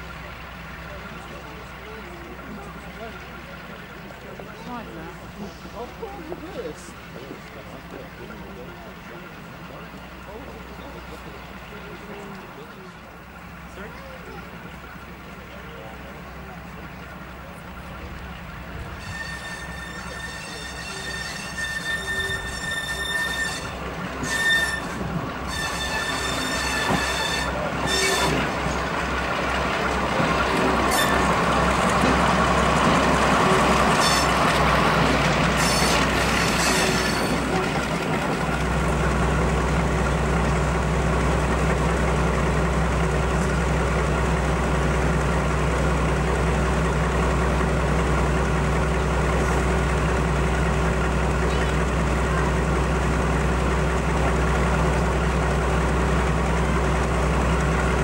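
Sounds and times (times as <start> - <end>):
diesel locomotive engine: 0.0 - 58.0
metallic wheel squeal: 19.0 - 28.5, 30.9 - 31.3, 33.5 - 34.4, 35.6 - 37.7.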